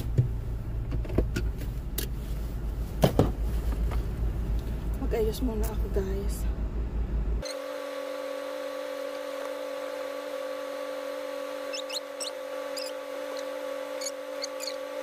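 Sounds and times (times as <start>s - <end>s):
humming drone: 7.4s - 15.0s.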